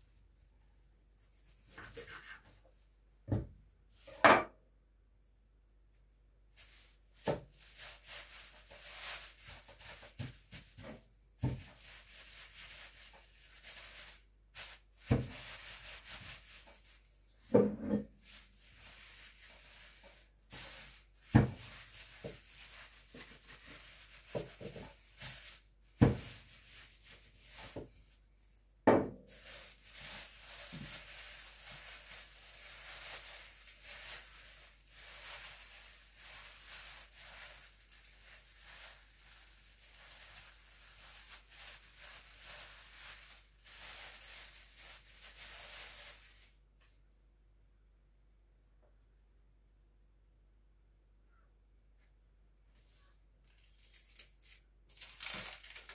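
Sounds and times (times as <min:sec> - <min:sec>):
plastic bag crinkling: 0:06.5 - 0:17.4, 0:18.0 - 0:28.2, 0:29.2 - 0:46.6, 0:53.4 - 0:55.9
knocks and thuds on counter: 0:28.9 - 0:29.2.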